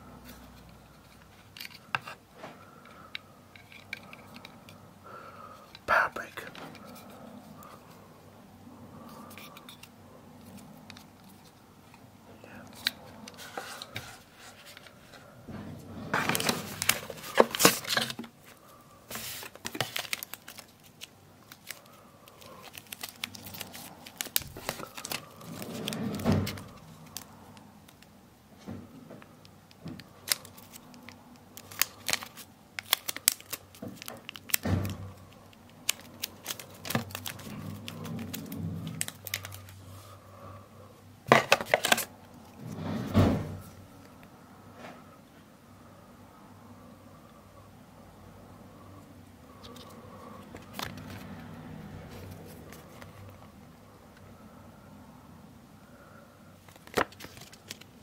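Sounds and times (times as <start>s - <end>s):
plastic film crinkling: 16.2s - 28.0s, 30.0s - 39.9s, 56.7s - 58.0s.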